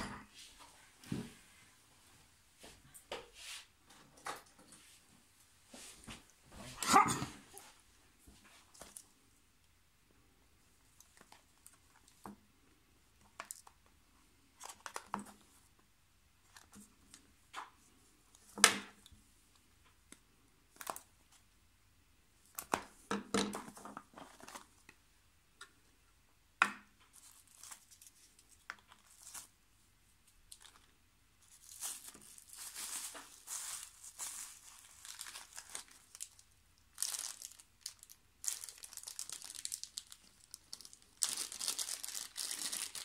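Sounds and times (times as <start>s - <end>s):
plastic wrap crinkling: 8.6s - 9.2s, 10.8s - 12.3s, 13.2s - 13.9s, 14.5s - 15.6s, 20.7s - 21.1s, 22.4s - 25.0s, 27.1s - 29.6s, 30.4s - 43.0s.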